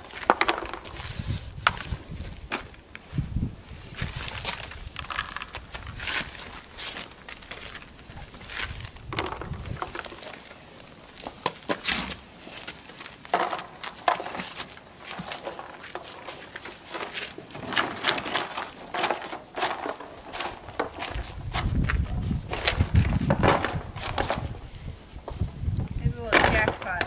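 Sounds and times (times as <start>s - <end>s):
horse crunching cardboard and treats: 0.0s - 3.0s, 3.9s - 27.0s.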